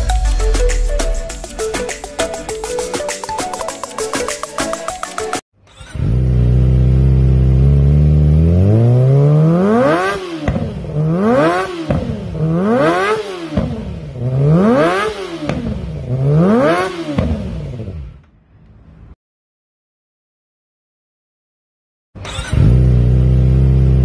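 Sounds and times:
motorcycle engine revving: 0:05.7 - 0:18.4, 0:22.2 - 0:24.0.

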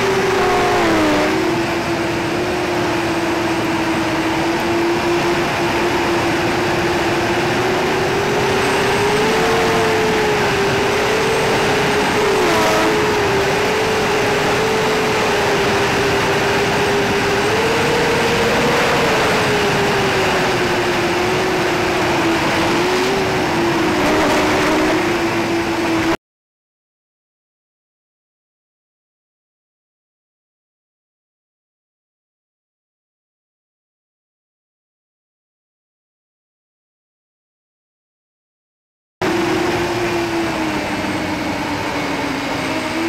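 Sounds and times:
drone motors whining: 0:00.0 - 0:26.2, 0:39.2 - 0:43.0.

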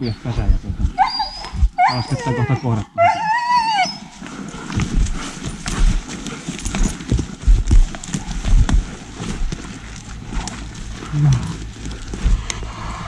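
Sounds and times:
heavy footsteps in undergrowth: 0:00.0 - 0:02.2, 0:04.0 - 0:13.0
brushwood rustling: 0:03.8 - 0:13.0
twigs cracking: 0:04.1 - 0:13.0.

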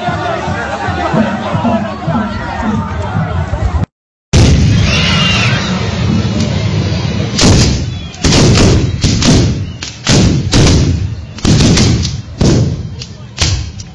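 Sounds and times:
musket gun blasts: 0:07.4 - 0:13.7.

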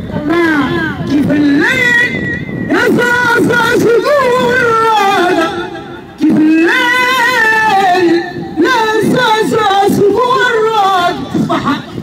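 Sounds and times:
boy singing: 0:06.2 - 0:11.2.

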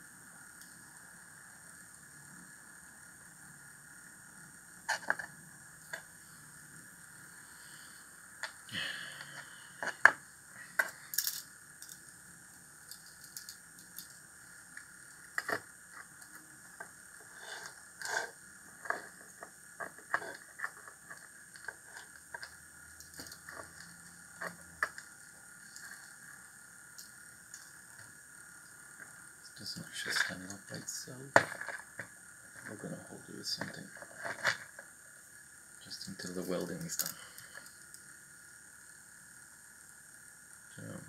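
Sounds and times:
small metal parts clinking on table: 0:10.8 - 0:12.1, 0:12.8 - 0:14.2, 0:22.4 - 0:23.9.

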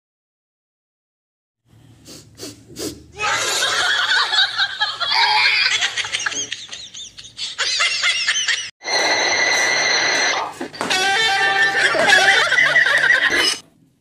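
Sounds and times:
short breathy puffs: 0:01.7 - 0:03.1
group of people laughing: 0:03.2 - 0:08.7, 0:11.3 - 0:13.6.

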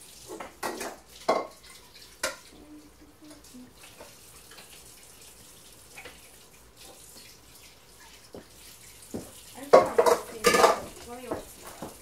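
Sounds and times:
tap water running into sink: 0:00.0 - 0:12.0.

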